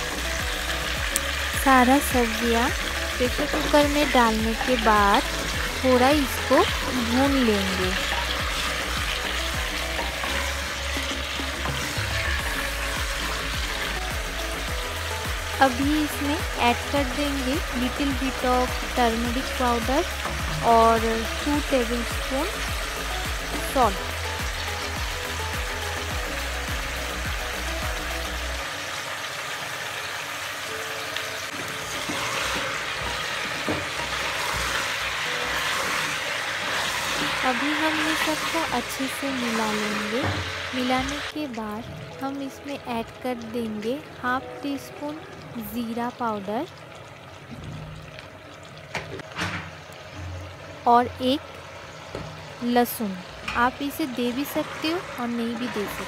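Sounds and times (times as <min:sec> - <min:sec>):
vegetables sizzling in oil: 0:00.0 - 0:56.0
wooden spatula scraping pot: 0:31.6 - 0:38.7.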